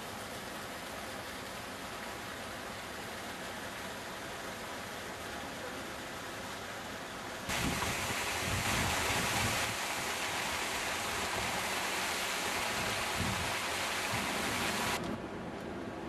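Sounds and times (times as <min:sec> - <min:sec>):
fountain water splashing into pool: 0:07.5 - 0:15.0.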